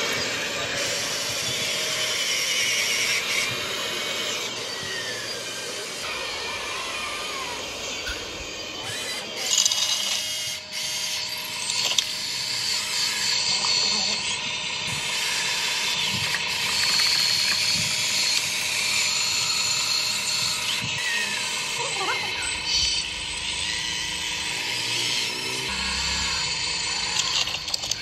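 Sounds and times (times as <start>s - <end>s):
small electric motors whirring: 0.0s - 28.0s.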